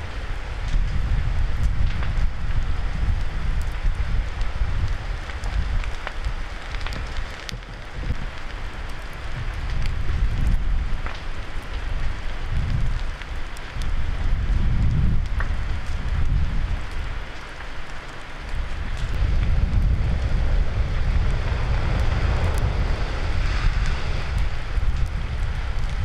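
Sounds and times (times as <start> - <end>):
fire crackling and hissing: 0.0 - 26.0
low rumble: 18.5 - 26.0.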